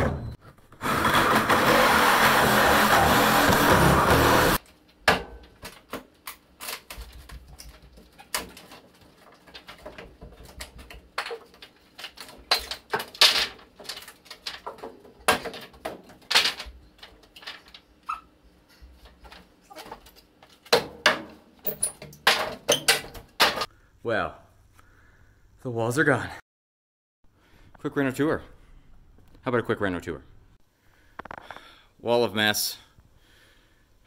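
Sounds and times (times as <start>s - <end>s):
wall material knocking and clattering: 6.8s - 17.7s.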